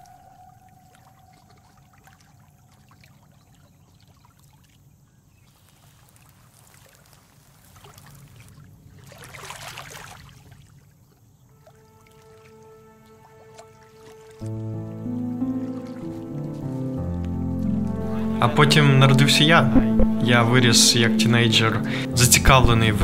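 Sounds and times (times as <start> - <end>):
water rushing: 0.0 - 3.5, 6.0 - 10.8, 11.5 - 22.6
water trickling and lapping: 0.0 - 18.3.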